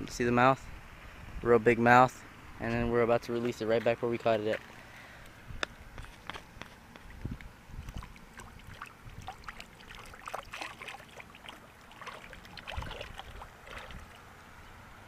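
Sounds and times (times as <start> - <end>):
fish splashing in shallow water: 6.8 - 14.4
water dripping: 7.0 - 14.2.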